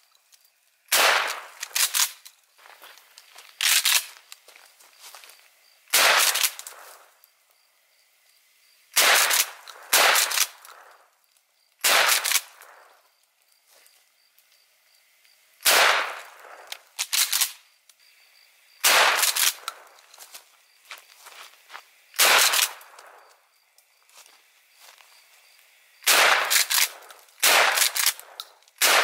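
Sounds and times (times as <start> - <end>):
shotgun shots with echo: 0.9 - 1.8, 5.9 - 6.8, 9.0 - 10.9, 11.8 - 12.8, 15.6 - 16.7, 18.8 - 19.8, 22.2 - 23.2, 26.0 - 29.0.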